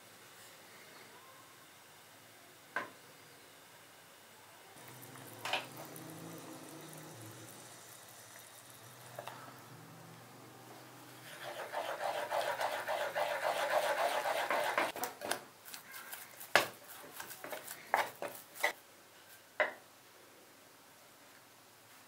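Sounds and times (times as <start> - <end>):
spatula stirring in saucepan: 10.8 - 15.0, 15.7 - 18.8.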